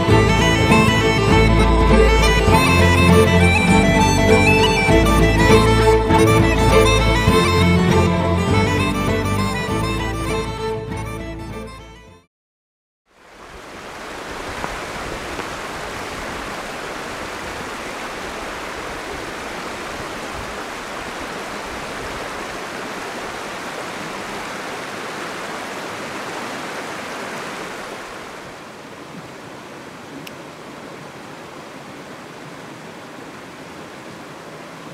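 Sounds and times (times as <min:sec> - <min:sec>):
river rushing over rocks: 0:13.2 - 0:34.9.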